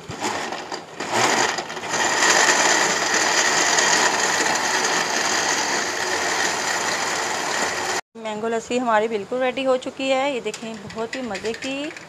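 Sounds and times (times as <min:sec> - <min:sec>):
blender running: 0:00.0 - 0:08.0.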